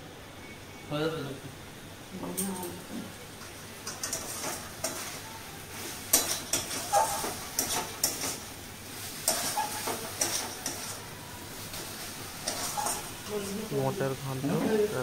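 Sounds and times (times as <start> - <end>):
metal spatula scraping a wok: 9.1 - 11.0, 12.4 - 13.5.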